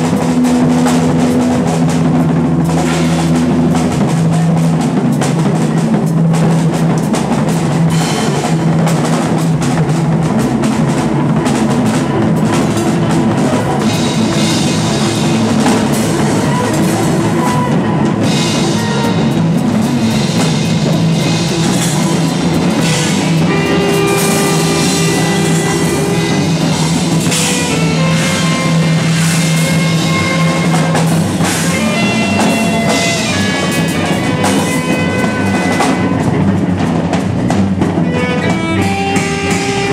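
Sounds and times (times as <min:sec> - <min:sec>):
drum kit pounding: 0:00.0 - 0:39.9
electric guitars: 0:00.0 - 0:39.9
droning bass note: 0:11.8 - 0:36.6.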